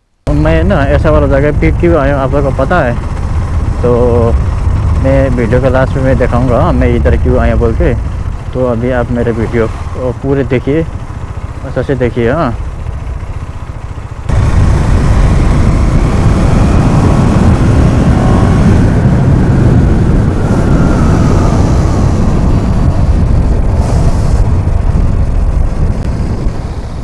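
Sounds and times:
motorcycle engine at speed: 0.3 - 27.0
wind rumble on microphone: 14.3 - 27.0.

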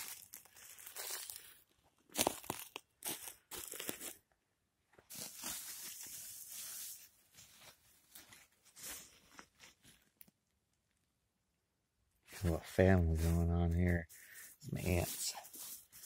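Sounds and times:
hand scraping pine needles: 0.0 - 1.5, 5.1 - 10.2, 12.3 - 16.0.

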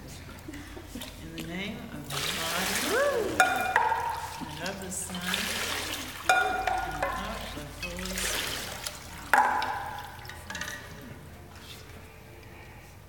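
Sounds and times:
water splashing and trickling: 0.3 - 12.1.

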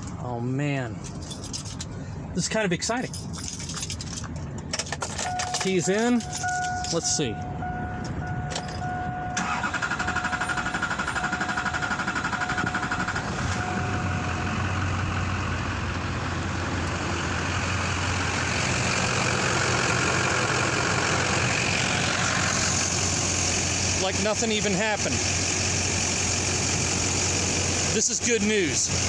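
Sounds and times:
diesel engine idling: 4.4 - 29.0
starter cranking engine: 9.4 - 13.9.

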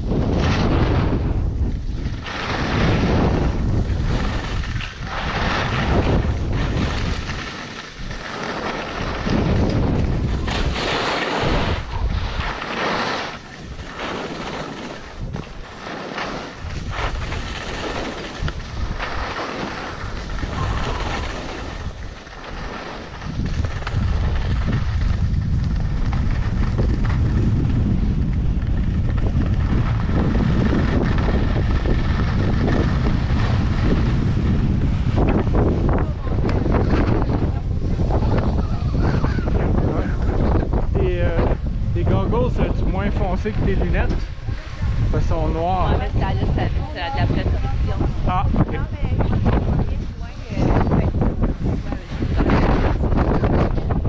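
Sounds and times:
wind buffeting microphone: 0.0 - 54.0
skis hissing on snow: 2.2 - 9.7, 10.5 - 24.6.

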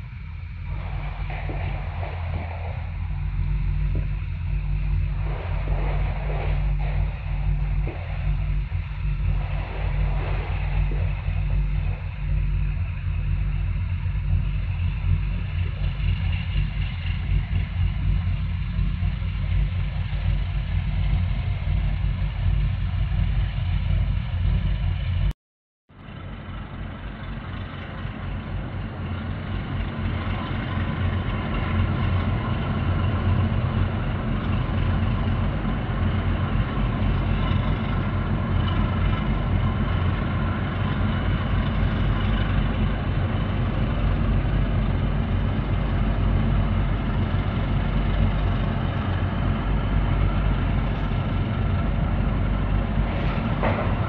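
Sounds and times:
boat engines rumbling: 0.0 - 25.3, 25.9 - 54.0.

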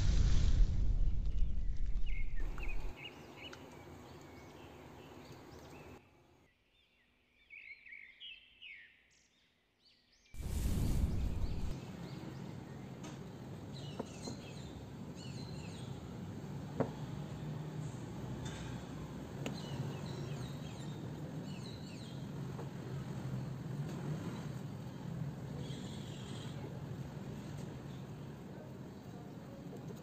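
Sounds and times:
loud rushing noise: 0.0 - 2.9, 10.4 - 11.7
small birds chirping: 1.2 - 13.0, 19.5 - 22.4.

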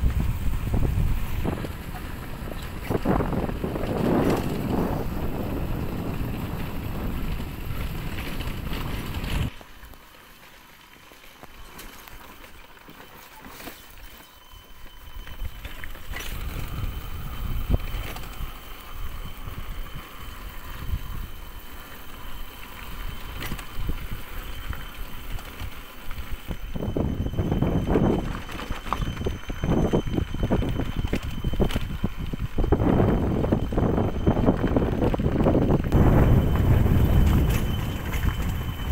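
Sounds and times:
wind buffeting microphone: 0.0 - 9.5, 15.1 - 21.6, 22.3 - 38.9
motorcycle engine: 0.0 - 9.6, 27.0 - 38.9.

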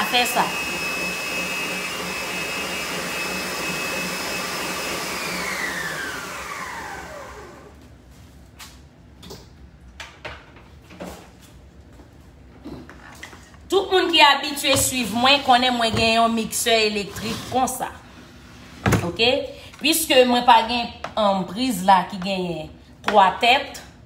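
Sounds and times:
electric mixer whining: 0.0 - 7.8.

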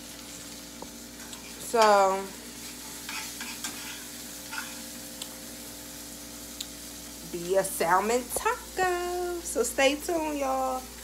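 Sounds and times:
fish sizzling in a pan: 0.0 - 11.0
spatula scraping: 2.6 - 4.8.

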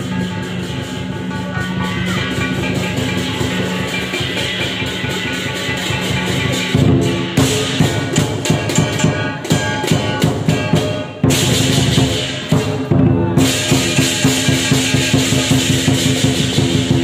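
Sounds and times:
cymbals clashing: 0.0 - 17.0
drum strokes: 0.0 - 17.0
gong ringing: 0.0 - 17.0.

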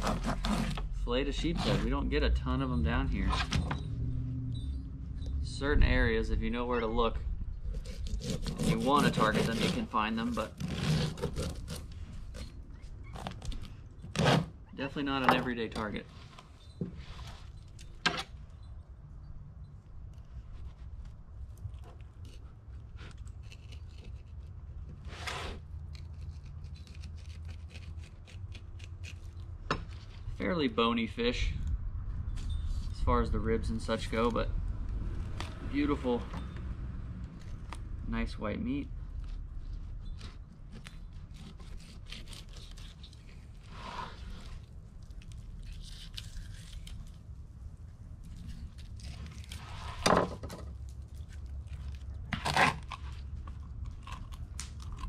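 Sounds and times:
knife cutting through fish scales: 0.0 - 1.9, 7.7 - 12.6, 22.2 - 29.4, 40.1 - 47.2.

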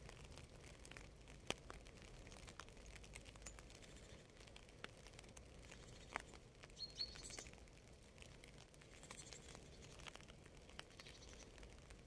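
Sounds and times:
light rain pattering: 0.0 - 12.0
bird chirps: 6.8 - 7.5, 10.9 - 11.5.

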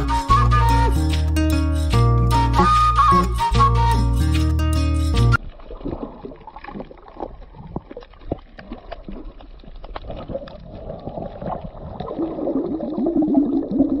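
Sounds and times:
bubbling gurgling water: 5.4 - 14.0.

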